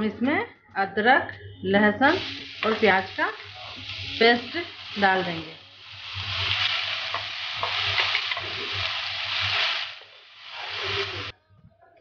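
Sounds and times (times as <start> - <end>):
paste sizzling in hot oil: 2.0 - 11.3.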